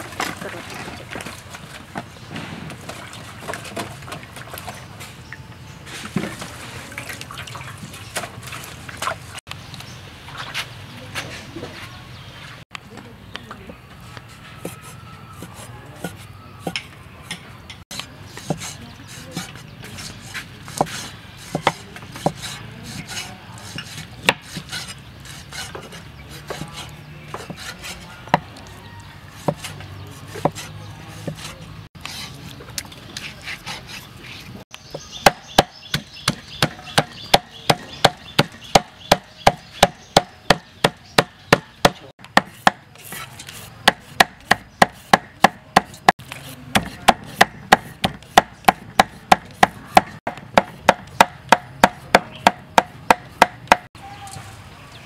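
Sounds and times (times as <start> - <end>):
cleaver chopping on wooden board: 20.7 - 28.5, 29.4 - 31.6, 34.9 - 53.9.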